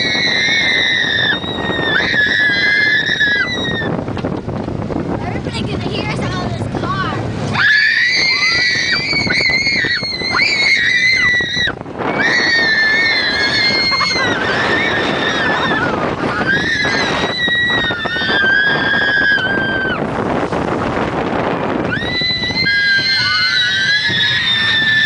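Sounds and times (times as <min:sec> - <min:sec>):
riders screaming: 0:00.0 - 0:04.0, 0:07.5 - 0:20.1, 0:21.8 - 0:25.0
wind and track noise: 0:00.0 - 0:25.0.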